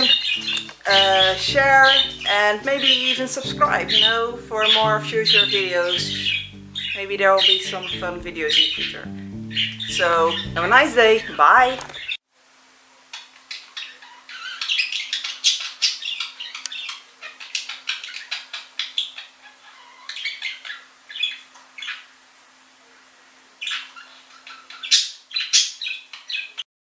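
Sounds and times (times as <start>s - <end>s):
budgerigar chirping and squawking: 0.0s - 12.2s, 13.5s - 22.1s, 23.6s - 26.6s.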